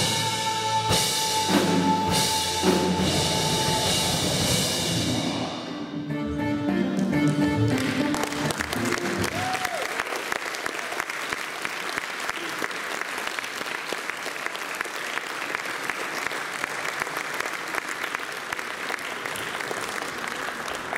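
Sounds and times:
audience applauding: 6.9s - 20.9s.

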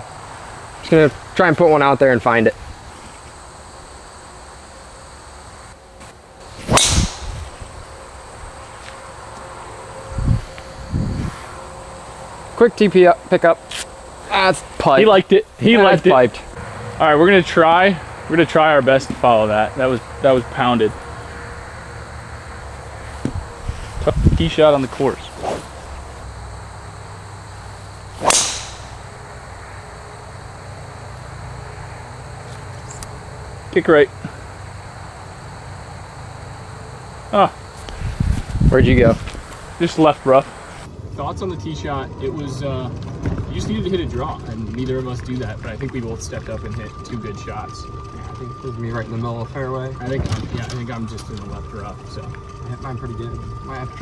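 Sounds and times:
golf club striking ball: 6.6s - 7.4s, 28.2s - 29.2s.

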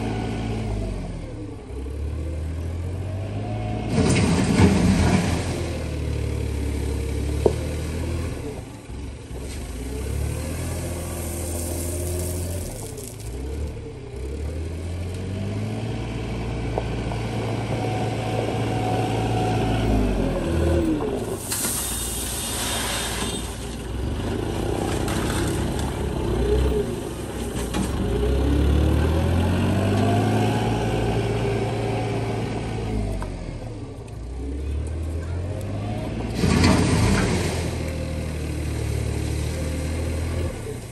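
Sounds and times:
loader engine revving: 0.0s - 23.1s, 23.8s - 40.9s
gravel pouring into truck bed: 10.6s - 13.7s, 21.3s - 23.9s, 36.4s - 37.9s.

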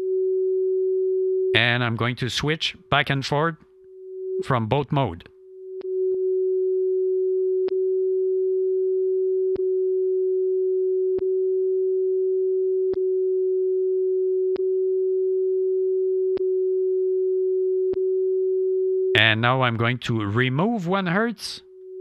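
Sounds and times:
steady radio beat tone: 19.2s - 21.5s.

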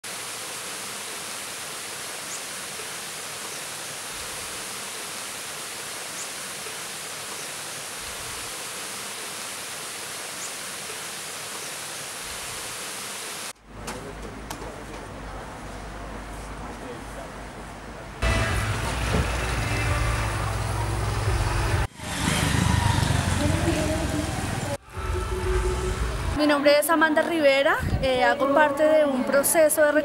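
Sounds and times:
creek water flowing: 0.0s - 13.6s.

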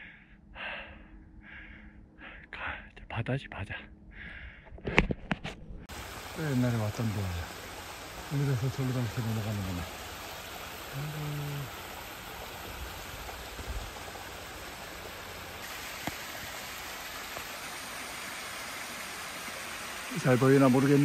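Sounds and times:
waterfall rushing over rock: 5.9s - 21.0s
person wordless vocal sound: 10.9s - 11.8s.

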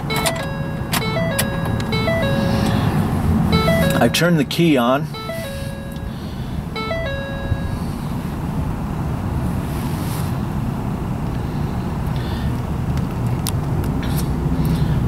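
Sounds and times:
electronic beep tone: 0.0s - 4.4s, 5.1s - 7.9s.

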